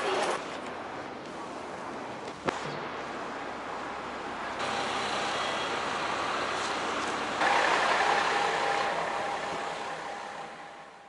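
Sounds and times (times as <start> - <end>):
road traffic noise: 0.0 - 11.0
bus engine running: 3.0 - 11.0.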